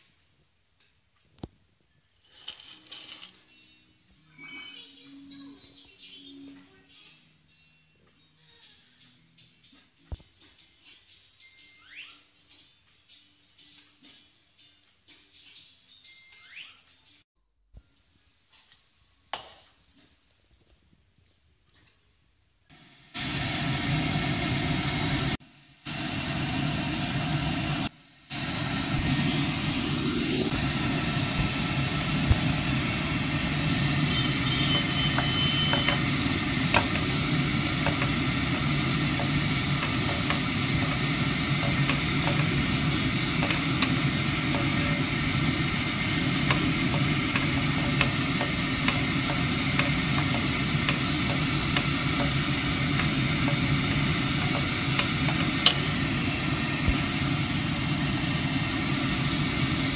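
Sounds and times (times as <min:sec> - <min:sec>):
food sizzling in a frying pan: 0:23.2 - 0:59.9
steady low hum: 0:23.2 - 0:59.9
wooden spoon knocking on pan: 0:34.5 - 0:45.1, 0:46.2 - 0:55.8.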